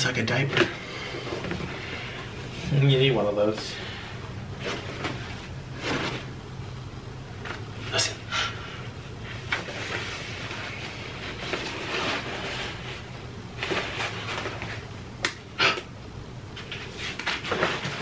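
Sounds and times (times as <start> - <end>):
paper wrapping rustling: 9.3 - 14.9, 16.6 - 18.0.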